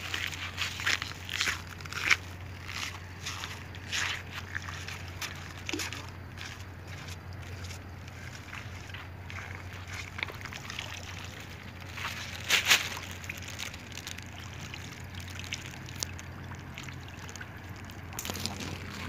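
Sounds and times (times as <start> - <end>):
seawater sloshing among rocks: 0.0 - 19.0
water splash: 8.3 - 19.0.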